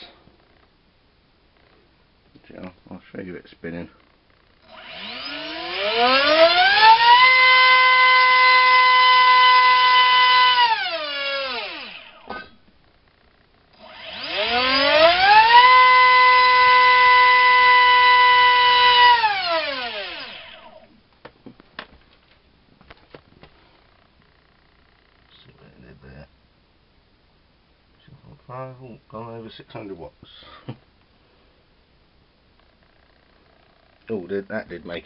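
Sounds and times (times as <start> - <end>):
electric motor propeller whine: 4.6 - 12.4, 13.8 - 20.8.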